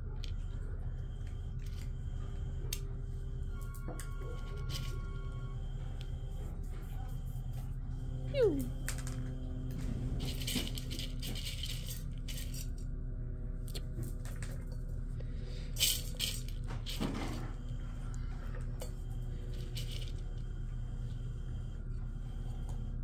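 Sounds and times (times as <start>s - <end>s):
steady low hum: 0.0s - 23.0s
dry kibble rattling on hard floor: 10.2s - 12.9s, 15.8s - 17.5s.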